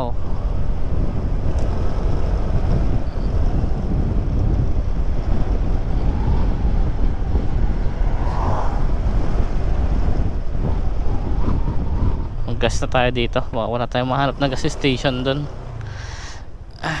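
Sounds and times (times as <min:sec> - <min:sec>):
wind rushing over microphone: 0:00.0 - 0:16.8
road noise: 0:00.0 - 0:17.0
scooter engine: 0:13.9 - 0:17.0.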